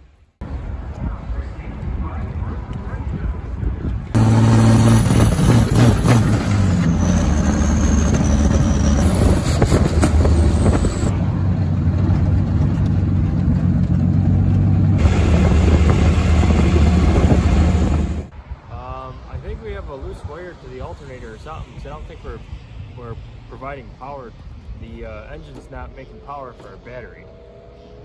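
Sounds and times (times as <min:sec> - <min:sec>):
car engine drone from inside: 0:04.1 - 0:18.3.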